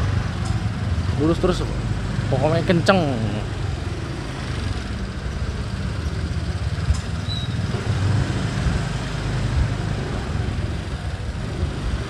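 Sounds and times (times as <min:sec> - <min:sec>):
motorcycle engine rumble: 0:00.0 - 0:12.0.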